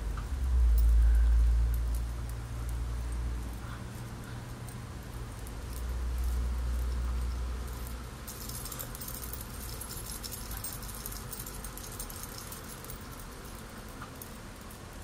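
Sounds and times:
bracelet charm jingling: 0:04.6 - 0:14.6.

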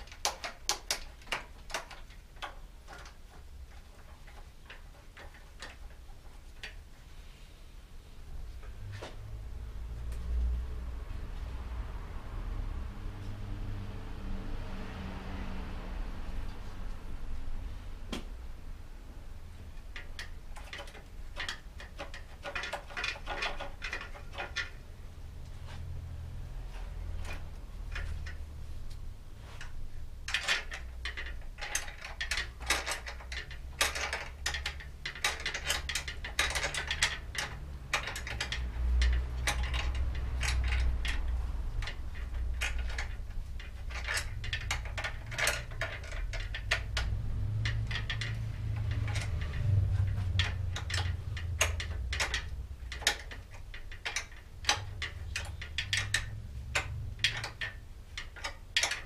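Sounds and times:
ratcheting clicks: 0:00.0 - 0:06.8, 0:19.8 - 0:24.8, 0:29.6 - 0:59.0
light metal clatter: 0:19.6 - 0:59.0.

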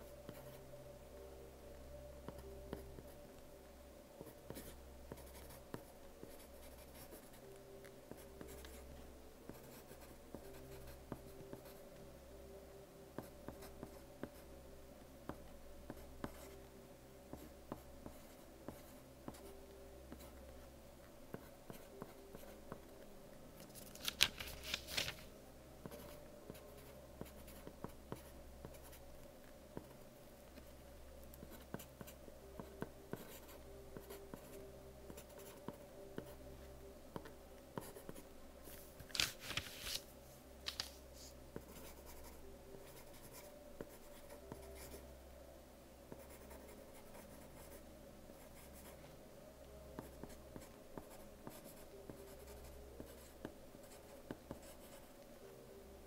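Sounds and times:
pencil scratching on paper: 0:04.2 - 0:07.3, 0:09.5 - 0:11.8, 0:33.1 - 0:34.5, 0:46.2 - 0:47.8, 0:48.5 - 0:49.0, 0:50.0 - 0:53.3.

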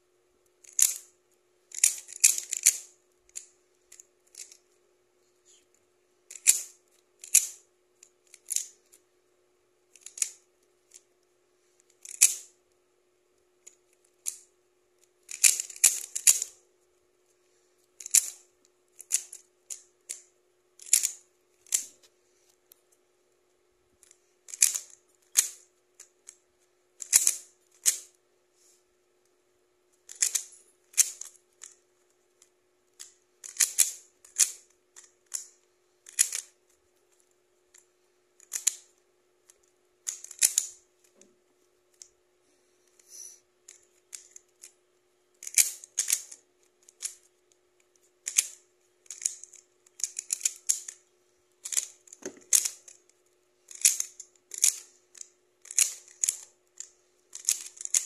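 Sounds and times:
plastic puzzle cube clicking: 0:00.5 - 0:01.1, 0:01.7 - 0:04.7, 0:06.3 - 0:09.0, 0:09.9 - 0:11.1, 0:11.8 - 0:12.6, 0:13.6 - 0:16.6, 0:17.9 - 0:22.0, 0:24.0 - 0:26.4, 0:27.0 - 0:28.2, 0:30.0 - 0:31.8, 0:32.4 - 0:37.8, 0:38.4 - 0:41.2, 0:43.7 - 0:44.8, 0:45.4 - 0:51.0, 0:51.6 - 0:58.0.

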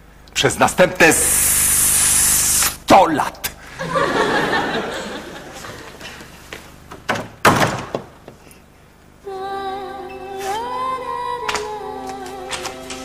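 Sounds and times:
wooden door slamming: 0:07.0 - 0:08.2
music cue of held tones: 0:09.4 - 0:13.0.

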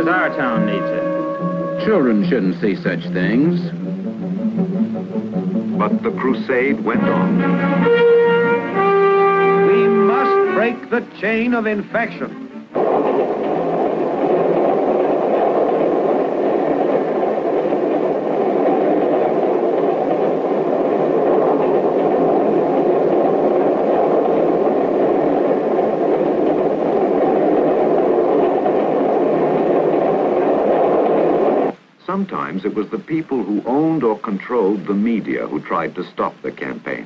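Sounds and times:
loud mechanical rushing noise: 0:12.6 - 0:31.8.

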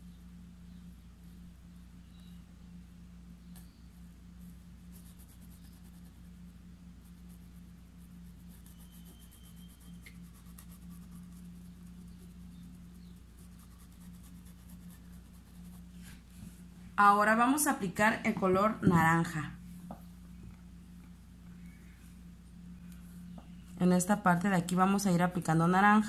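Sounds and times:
steady low hum: 0:00.0 - 0:26.0
paintbrush scratching on cloth: 0:04.4 - 0:16.7.

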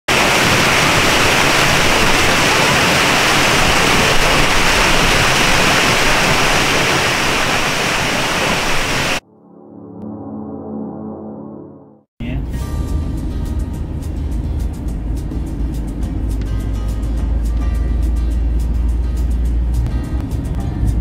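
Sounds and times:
waterfall rushing: 0:00.1 - 0:09.2.

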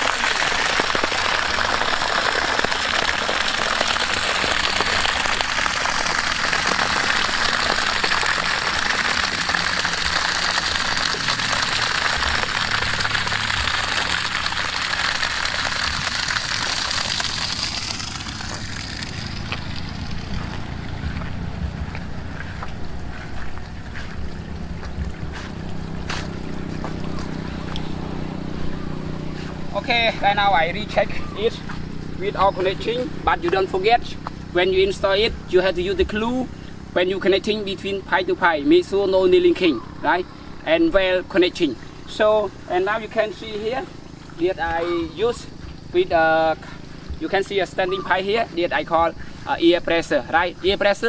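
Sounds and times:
water gushing from pipe onto grass: 0:00.0 - 0:51.0
wind on microphone: 0:18.4 - 0:27.8.

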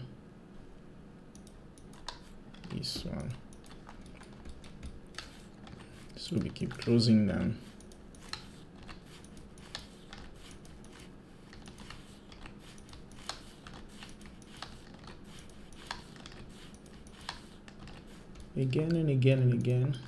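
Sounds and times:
mouse buttons clicking: 0:01.4 - 0:05.8, 0:07.8 - 0:19.0
keyboard keys clicking: 0:01.4 - 0:07.0.

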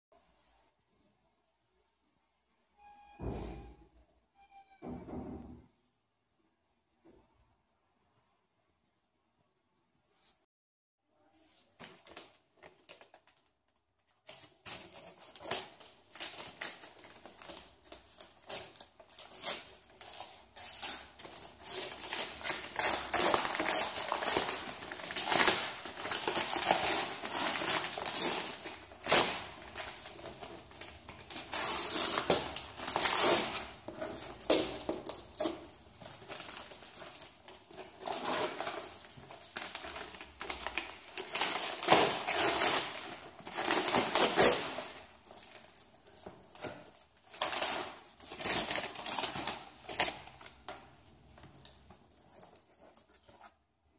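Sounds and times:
paper tearing and crumpling: 0:14.3 - 0:45.8.

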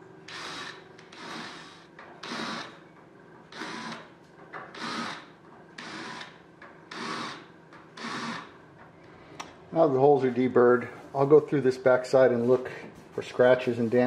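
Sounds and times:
cordless drill short bursts: 0:00.3 - 0:02.8, 0:03.5 - 0:04.1, 0:04.7 - 0:08.5.

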